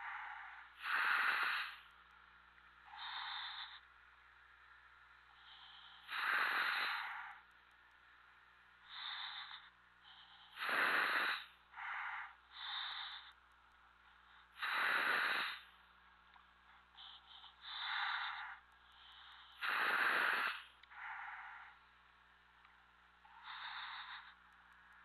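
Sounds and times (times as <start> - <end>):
diver breathing through helmet: 0.0 - 1.8
faint steady hum: 0.0 - 25.0.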